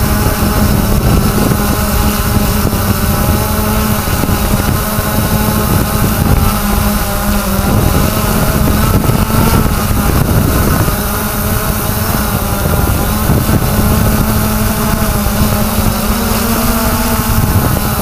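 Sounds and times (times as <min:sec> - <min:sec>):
drone propellers humming: 0:00.0 - 0:18.0
wind rumbling on microphone: 0:00.0 - 0:18.0.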